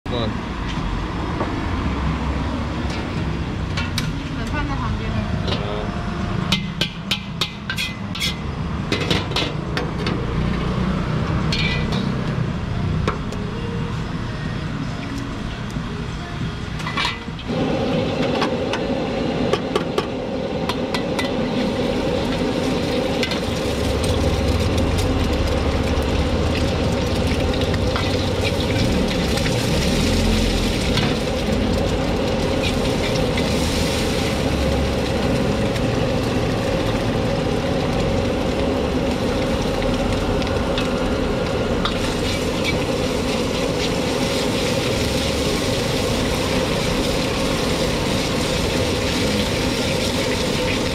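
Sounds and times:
metal ladle scraping a wok: 0:06.5 - 0:10.6, 0:11.4 - 0:12.2, 0:16.8 - 0:17.5, 0:41.8 - 0:46.8
gas burner rushing: 0:16.9 - 0:50.9
egg sizzling in hot oil: 0:20.7 - 0:50.9.

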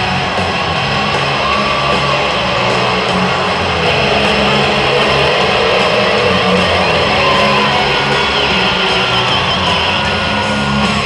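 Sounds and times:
guitar rock music over speakers: 0:00.0 - 0:11.0
loud arena crowd noise: 0:00.0 - 0:11.0.

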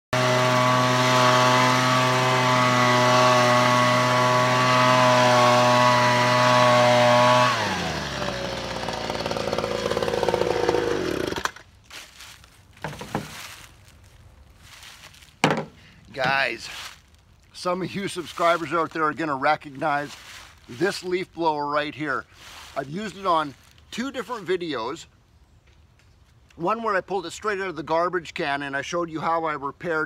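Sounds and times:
leaf blower running: 0:00.1 - 0:11.6.

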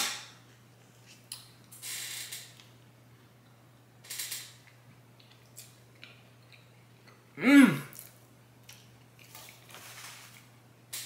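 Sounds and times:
cookie tearing rustles: 0:08.0 - 0:11.0.

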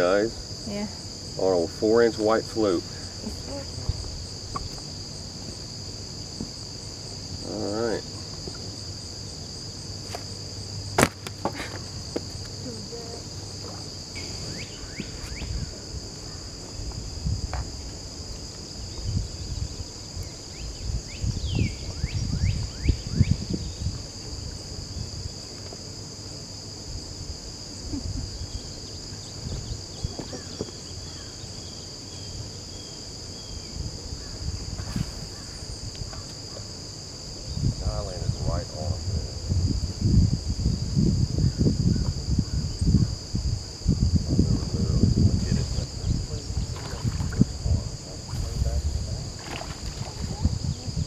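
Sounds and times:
insect chorus drone: 0:00.0 - 0:51.0
low thumps and rustles: 0:46.5 - 0:51.0.

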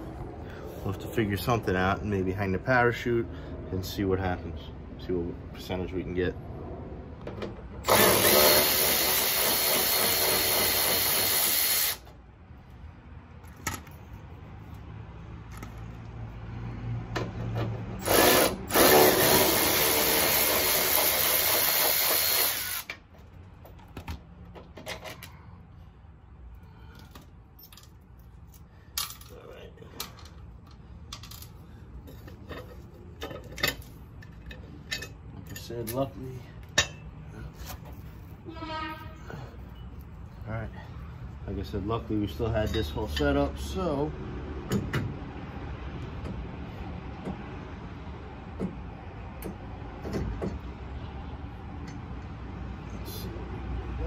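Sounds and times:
cordless power ratchet running: 0:07.8 - 0:12.0, 0:18.0 - 0:22.9.

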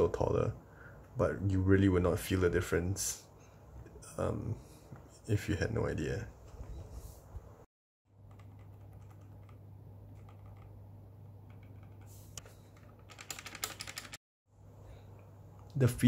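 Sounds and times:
mechanical keyboard key clacks: 0:13.0 - 0:14.2.

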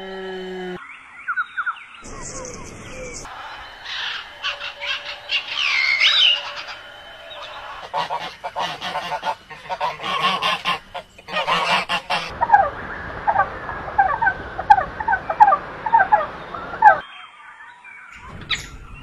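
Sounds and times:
small bird chirping: 0:01.2 - 0:03.3
geese honking loudly: 0:03.3 - 0:12.7.

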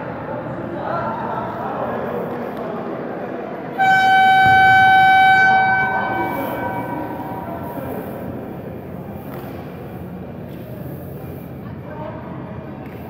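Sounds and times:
players' voices: 0:00.1 - 0:12.9
timer horn long note: 0:03.8 - 0:08.3
hall noise: 0:03.8 - 0:09.2.

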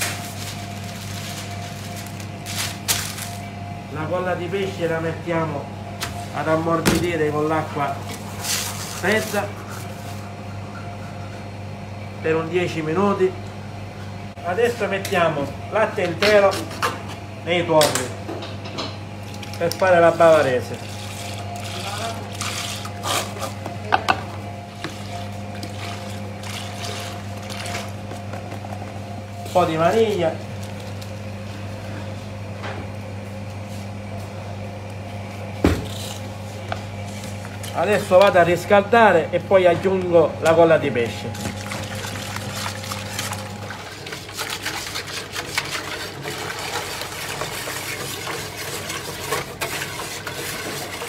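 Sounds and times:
steady low hum: 0:00.0 - 0:51.0
liquid sloshing in a bowl: 0:19.2 - 0:23.7, 0:24.7 - 0:28.9, 0:41.3 - 0:51.0.

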